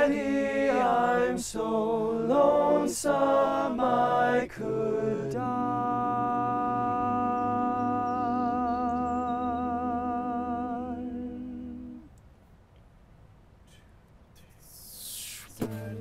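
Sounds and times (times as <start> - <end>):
male choir holding sung chord: 0.0 - 12.1.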